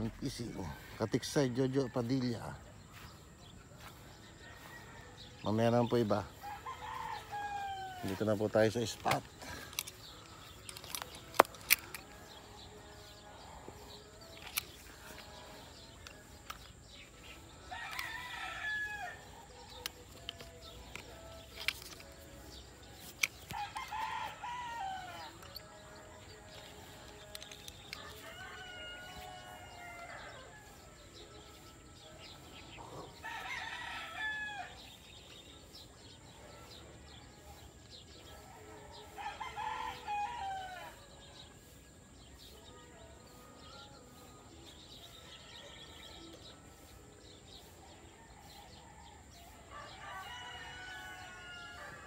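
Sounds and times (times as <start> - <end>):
roosters crowing: 3.8 - 35.9, 37.9 - 41.4, 45.0 - 52.0.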